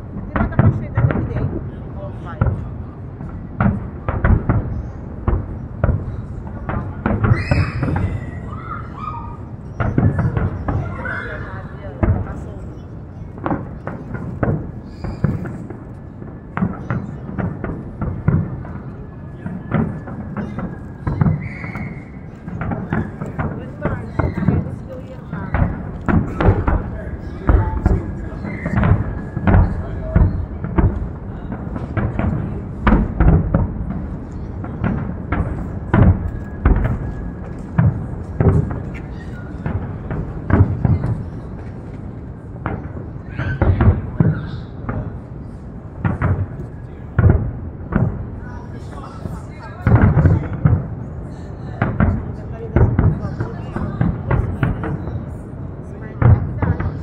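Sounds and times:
steady background din: 0.0 - 51.1
fireworks bangs and thuds: 0.0 - 57.0
high firework whistle: 7.2 - 10.8, 14.8 - 15.7, 19.9 - 22.3, 23.9 - 24.8, 28.2 - 30.4.

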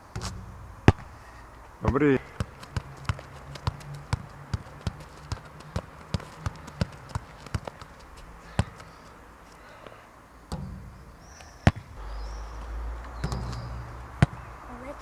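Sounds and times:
ball bouncing on court: 0.1 - 1.1, 1.8 - 8.9, 11.6 - 12.0, 13.2 - 14.4
ball striking backboard: 11.7 - 11.9.

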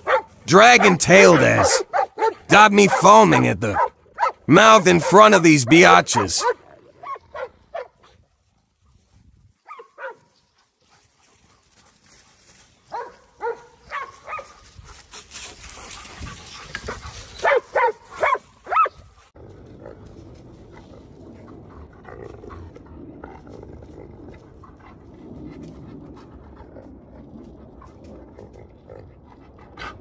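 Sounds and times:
dog barking: 0.0 - 3.0, 3.7 - 4.4, 6.2 - 8.0, 9.7 - 10.3, 12.9 - 14.6, 17.4 - 18.9.

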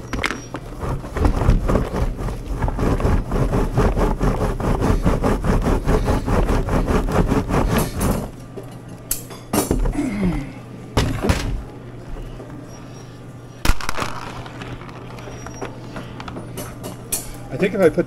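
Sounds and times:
wooden cutter rattling: 0.0 - 8.4
steady low hum: 0.0 - 18.0.

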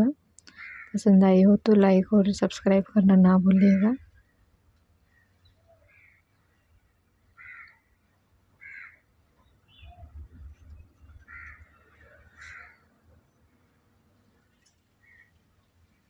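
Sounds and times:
crow cawing: 0.5 - 1.0, 7.4 - 7.8, 8.6 - 9.0, 11.3 - 12.8.

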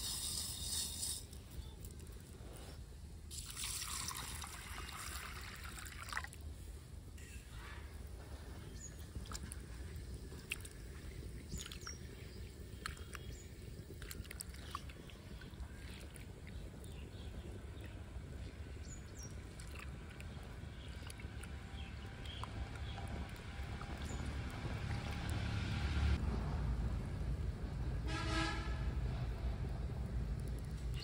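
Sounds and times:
low outdoor rumble: 0.0 - 31.0
grain sloshing in water: 8.9 - 17.9, 19.0 - 25.5.

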